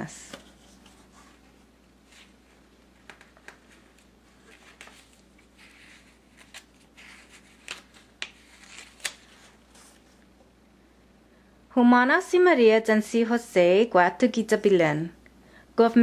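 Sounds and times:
paper rustling: 0:00.3 - 0:10.2
soft clicks of pages: 0:03.0 - 0:05.7.

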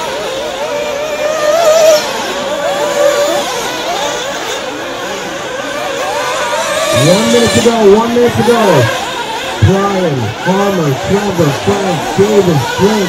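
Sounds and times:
rc buggy engines racing: 0:00.0 - 0:13.0.

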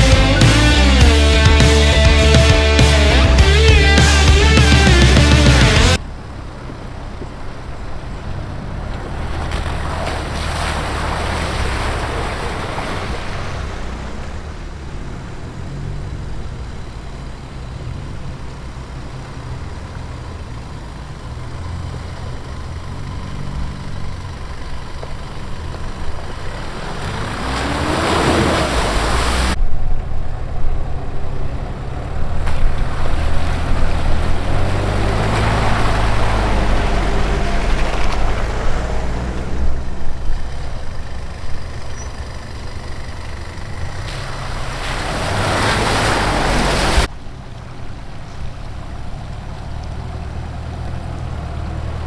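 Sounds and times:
engines pulling under load: 0:00.0 - 0:52.0
water splashing around tyres: 0:06.0 - 0:52.0.

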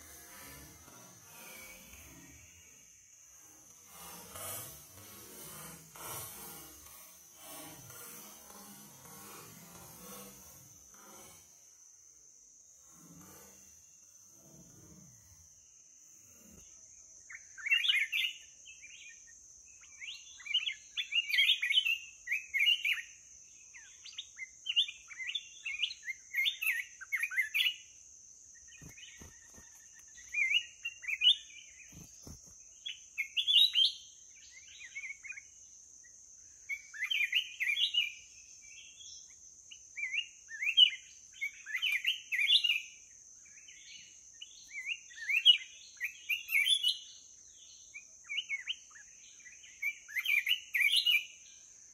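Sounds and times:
steady high-pitched hiss: 0:00.0 - 0:51.9
bird singing warbling phrases: 0:28.6 - 0:35.6, 0:36.5 - 0:51.4.

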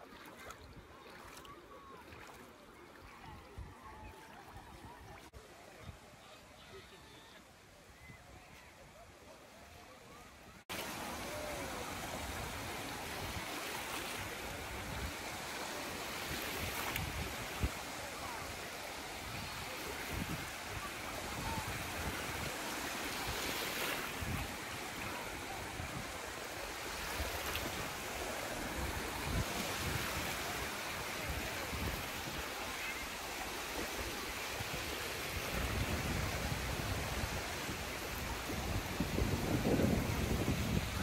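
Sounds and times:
waves lapping on sandy shore: 0:00.0 - 0:08.6, 0:10.4 - 0:41.0
wind rumble on microphone: 0:35.3 - 0:41.0.

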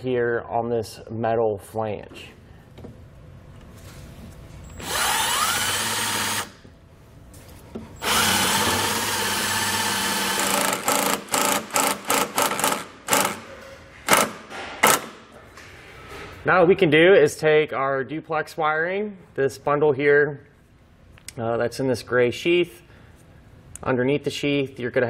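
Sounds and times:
impact driver driving screw into metal: 0:08.0 - 0:13.5, 0:14.1 - 0:15.2.

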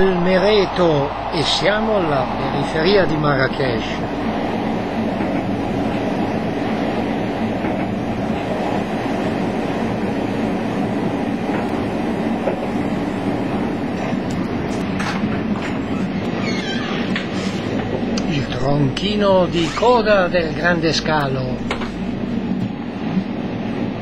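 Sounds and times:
train running on rails: 0:00.0 - 0:24.0.

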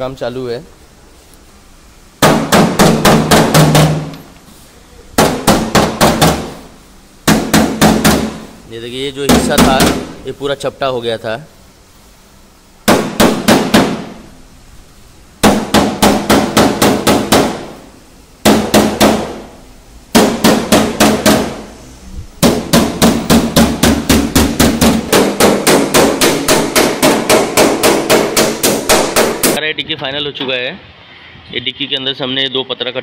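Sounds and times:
hammer blows on sheet metal: 0:02.2 - 0:04.2, 0:12.8 - 0:14.3, 0:18.4 - 0:21.7, 0:22.4 - 0:29.6.

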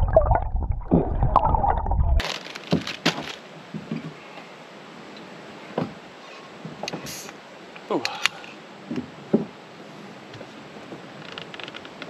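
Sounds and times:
muffled churning water underwater: 0:00.0 - 0:02.2
faint hiss: 0:02.3 - 0:11.2.

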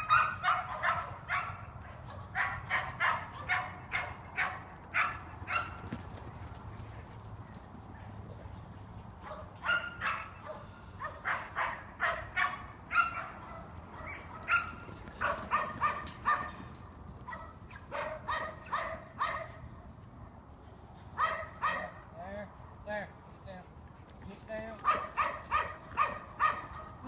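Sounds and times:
dog barking: 0:00.0 - 0:05.8, 0:09.2 - 0:16.6, 0:17.3 - 0:19.6, 0:21.2 - 0:22.0, 0:24.8 - 0:27.0.

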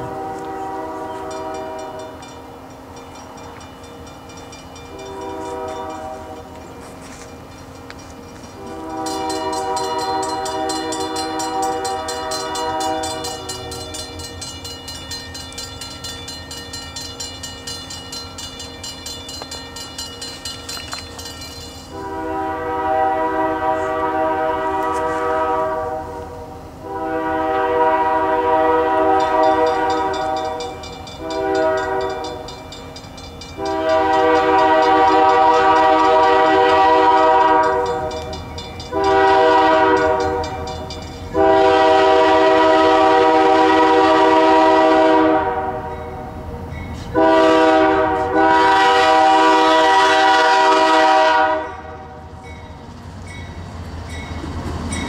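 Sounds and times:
locomotive air horn blasts: 0:00.0 - 0:02.2, 0:04.9 - 0:06.5, 0:08.6 - 0:14.0, 0:21.9 - 0:32.4, 0:33.6 - 0:40.7, 0:41.3 - 0:46.1, 0:47.1 - 0:52.3
crossing warning bell ringing: 0:00.0 - 0:24.7, 0:27.7 - 0:55.0
train rumble: 0:00.0 - 0:55.0.

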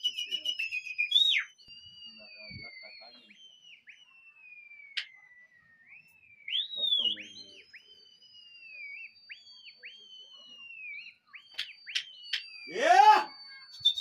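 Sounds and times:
person whistling: 0:00.0 - 0:01.5, 0:12.7 - 0:14.0.

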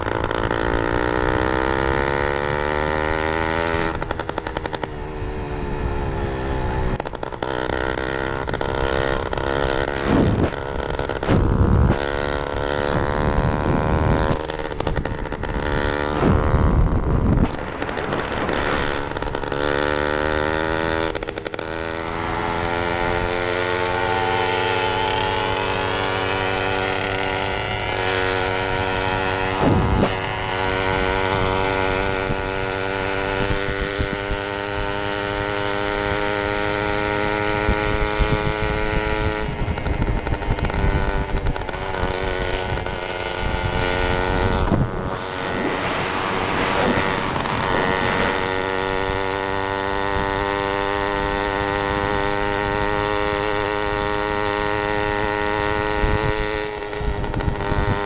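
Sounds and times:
small two-stroke engine running: 0:00.0 - 0:58.0
wind rumble on microphone: 0:09.2 - 0:22.0, 0:24.8 - 0:58.0.

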